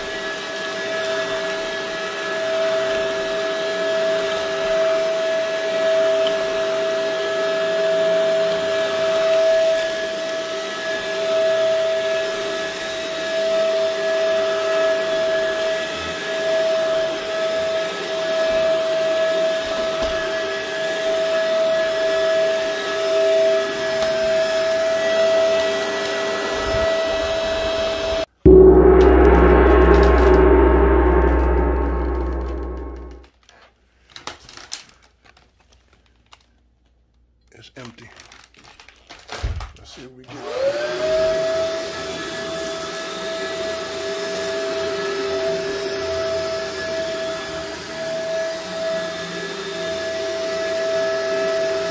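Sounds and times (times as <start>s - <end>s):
vacuum cleaner running: 40.3s - 51.9s.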